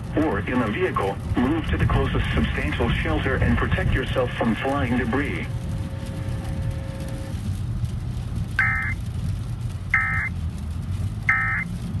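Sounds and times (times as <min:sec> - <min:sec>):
road and engine noise in car: 0:00.0 - 0:12.0
electronic data bursts from radio: 0:08.6 - 0:09.0, 0:10.0 - 0:10.3, 0:11.3 - 0:11.7.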